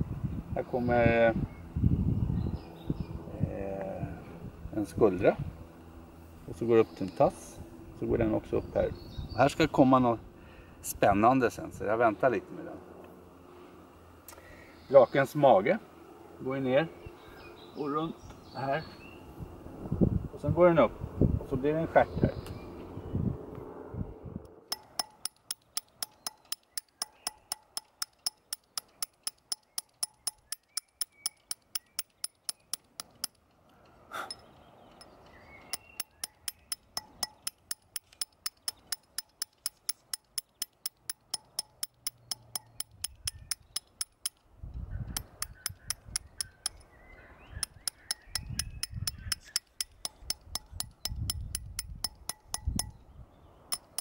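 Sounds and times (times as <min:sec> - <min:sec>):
hammer striking chisel on stone: 0:24.7 - 0:33.4, 0:35.0 - 0:44.4, 0:45.2 - 0:46.9, 0:47.6 - 0:53.0, 0:53.7 - 0:54.0.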